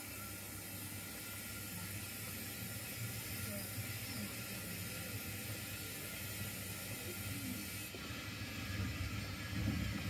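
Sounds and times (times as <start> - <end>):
even hiss: 0.0 - 8.0.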